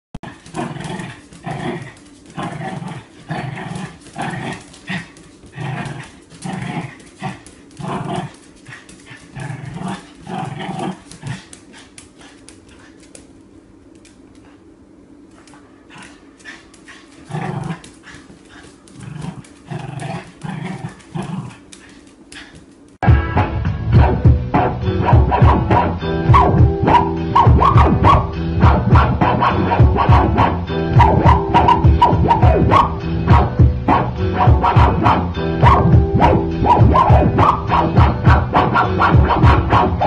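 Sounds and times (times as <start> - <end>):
dog barking: 25.0 - 40.0.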